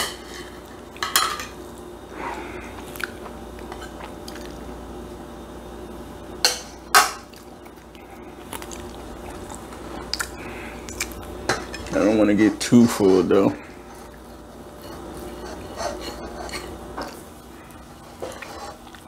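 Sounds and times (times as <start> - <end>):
soft chewing: 2.6 - 4.7, 7.2 - 12.0, 13.6 - 19.0.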